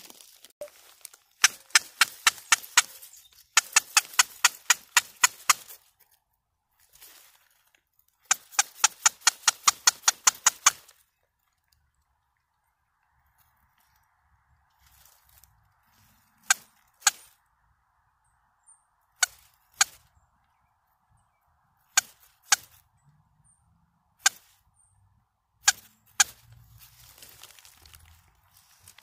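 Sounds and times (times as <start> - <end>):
squirrel call barks: 8.2 - 10.9, 16.4 - 17.3, 19.2 - 20.1, 21.9 - 22.8, 25.6 - 26.4.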